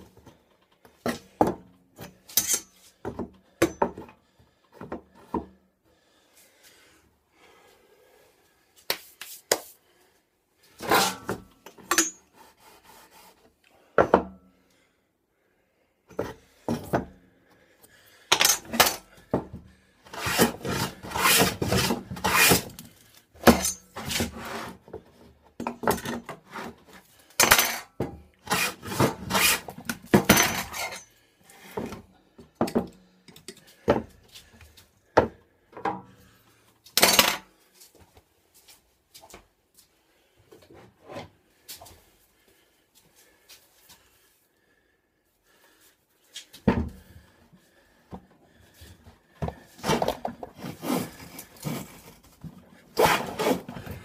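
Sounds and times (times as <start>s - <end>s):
plane rasping along wood: 20.1s - 22.7s, 28.5s - 29.7s, 50.6s - 51.9s, 53.0s - 53.7s.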